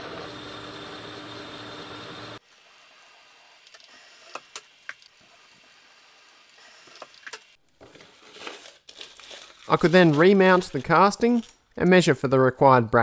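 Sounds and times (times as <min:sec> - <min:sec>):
milling machine whining: 0:00.0 - 0:02.4.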